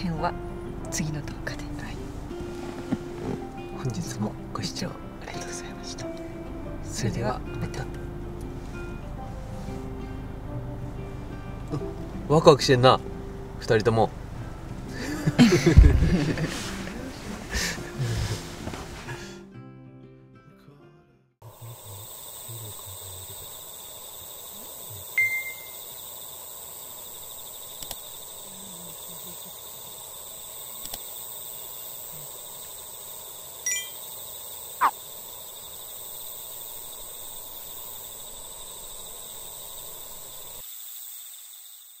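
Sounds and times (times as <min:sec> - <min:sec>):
high thin whine: 0:21.4 - 0:32.6.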